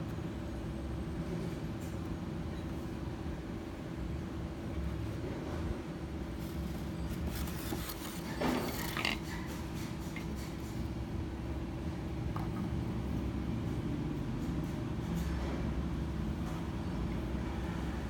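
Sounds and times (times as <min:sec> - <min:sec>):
constant hum: 0:00.0 - 0:18.0
soft rustles: 0:06.4 - 0:09.2.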